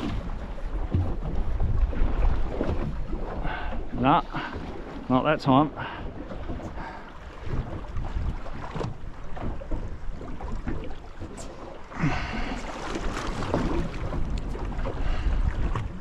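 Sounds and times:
water slapping against hull: 0:00.0 - 0:16.0
wind buffeting microphone: 0:05.8 - 0:16.0.

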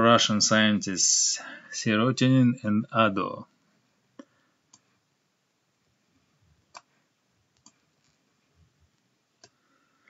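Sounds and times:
computer mouse clicks: 0:04.7 - 0:04.9, 0:06.7 - 0:06.9, 0:07.6 - 0:08.2.

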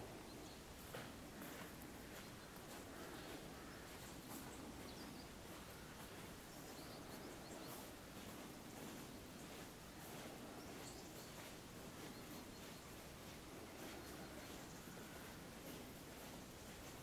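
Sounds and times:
faint distant bird chirps: 0:00.0 - 0:17.0
low steady background hiss: 0:00.0 - 0:17.0.

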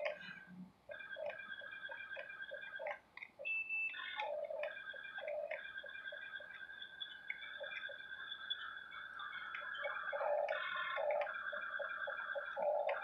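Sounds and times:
plastic gears ticking: 0:00.9 - 0:08.1.

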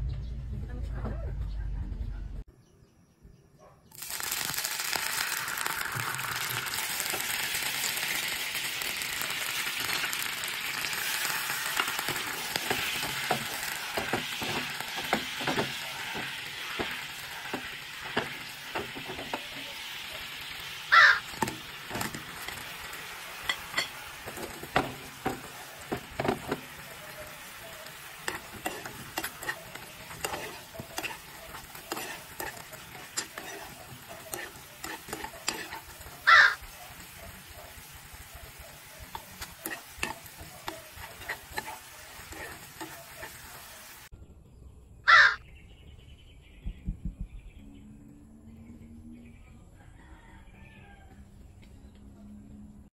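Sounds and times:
sugar syrup sizzling in pan: 0:03.9 - 0:44.1
utensil scraping pan: 0:09.9 - 0:44.0.

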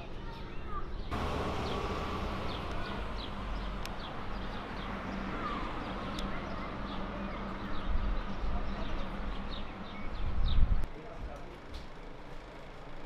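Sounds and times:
low rumble of traffic: 0:00.0 - 0:13.0
wind: 0:00.0 - 0:13.0
birds chirping: 0:00.3 - 0:10.8.

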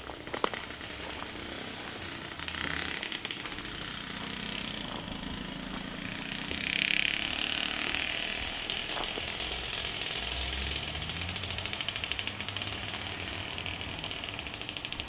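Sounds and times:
low hum: 0:00.0 - 0:15.0
outdoor background noise: 0:00.0 - 0:15.0
hiss: 0:12.7 - 0:14.7.

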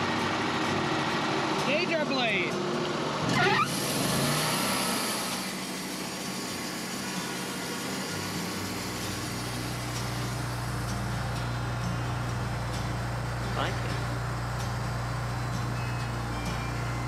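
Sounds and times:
engine idling: 0:00.0 - 0:17.0
deep machine hum: 0:03.8 - 0:17.0.

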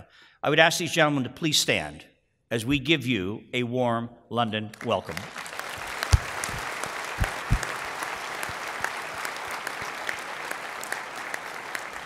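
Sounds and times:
audience applause: 0:04.9 - 0:12.0.

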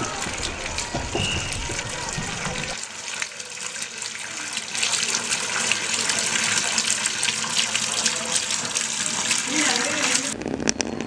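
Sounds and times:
water running from a tap: 0:00.0 - 0:10.4.

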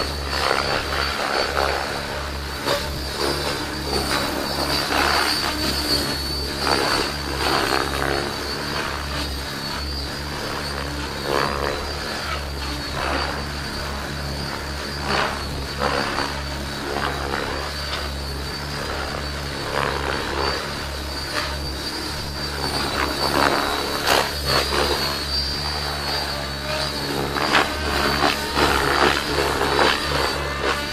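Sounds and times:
helicopter motor whine: 0:00.0 - 0:30.9
rotor blades whooshing: 0:00.0 - 0:30.9.

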